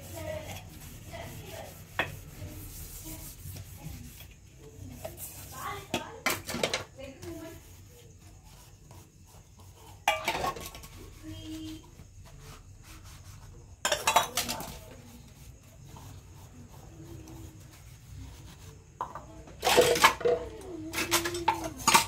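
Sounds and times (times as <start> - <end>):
metal vessels clattering in sink: 5.9 - 6.9, 10.0 - 11.0, 13.8 - 14.8, 19.0 - 22.0.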